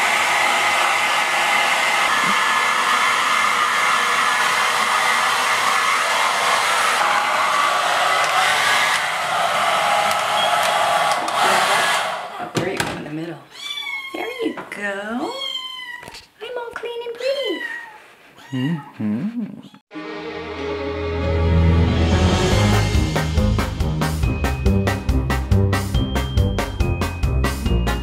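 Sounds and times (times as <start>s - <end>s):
hair dryer blowing: 0.0s - 12.8s.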